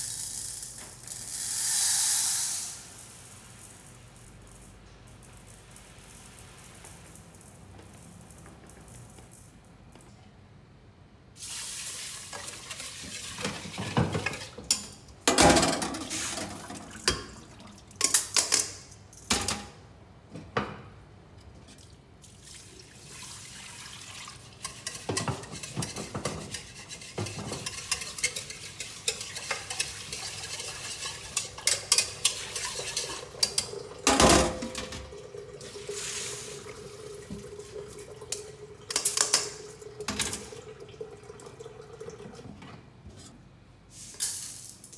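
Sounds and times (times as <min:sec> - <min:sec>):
water running and pouring: 0:11.4 - 0:14.6, 0:22.2 - 0:24.9, 0:29.2 - 0:42.5
whisk and pot clinking: 0:24.1 - 0:35.0
water poured off ringing: 0:34.7 - 0:42.4.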